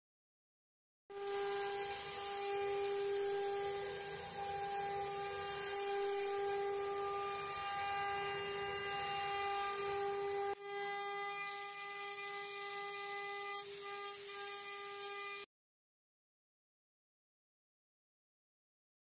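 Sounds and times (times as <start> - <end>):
wood router spindles whining: 1.1 - 15.5.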